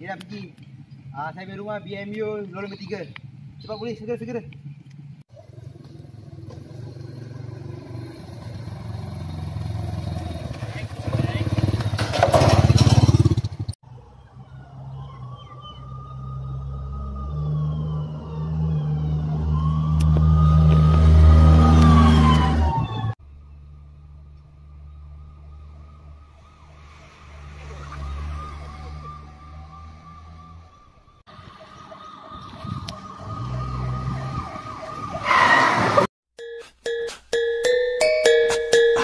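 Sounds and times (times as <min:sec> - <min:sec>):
low engine hum: 0:13.9 - 0:31.2
police siren wailing: 0:13.9 - 0:36.1.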